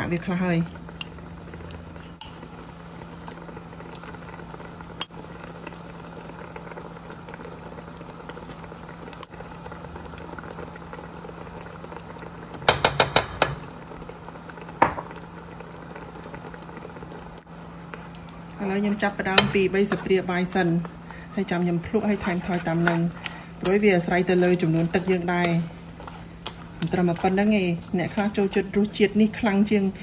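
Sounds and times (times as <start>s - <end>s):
liquid bubbling and simmering: 0.0s - 30.0s
metal spoon tapping pan: 12.6s - 13.6s
steady low hum: 13.6s - 30.0s.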